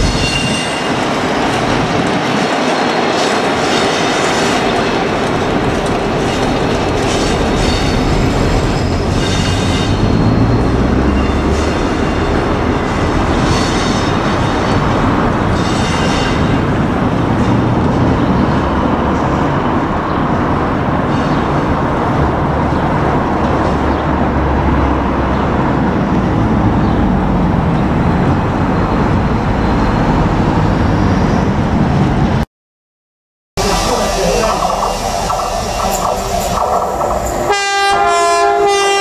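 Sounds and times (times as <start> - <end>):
high wheel squeal: 0.0 - 1.1, 2.8 - 16.9
diesel locomotive engines droning: 0.0 - 32.4, 33.6 - 39.0.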